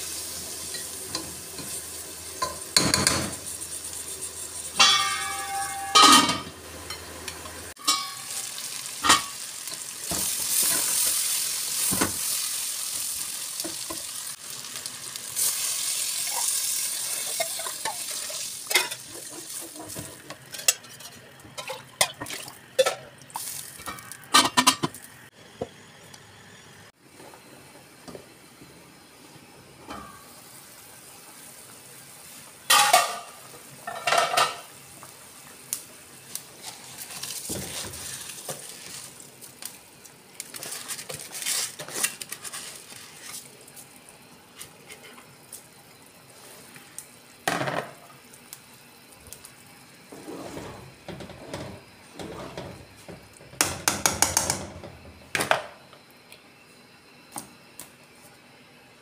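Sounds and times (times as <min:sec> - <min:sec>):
metal spoon clanking on pot: 0:04.8 - 0:07.1, 0:07.8 - 0:08.3
soft hiss of rice stirred: 0:34.6 - 0:47.4.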